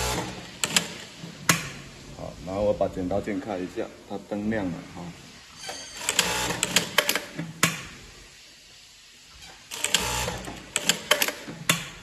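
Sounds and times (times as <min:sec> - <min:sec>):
sewing machine stitching: 0:09.7 - 0:11.5.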